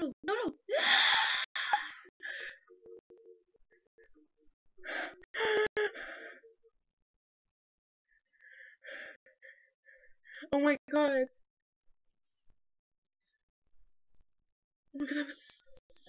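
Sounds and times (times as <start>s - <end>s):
women gasping and groaning: 0.7s - 2.6s.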